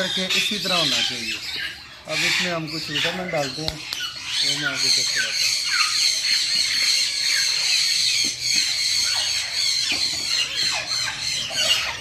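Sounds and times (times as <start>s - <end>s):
birds chirping and chattering: 0.0s - 12.0s.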